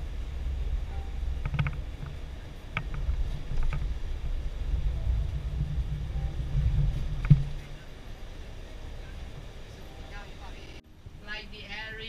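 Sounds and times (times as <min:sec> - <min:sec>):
coach engine and tyres rumbling: 0:00.0 - 0:12.0
light clicks and rattles: 0:01.4 - 0:04.2.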